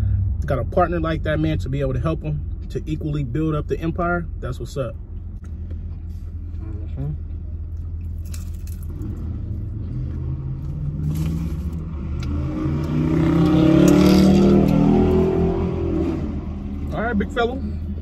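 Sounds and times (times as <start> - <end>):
steady low rumble: 0.0 - 12.4
car accelerating past: 8.9 - 16.9.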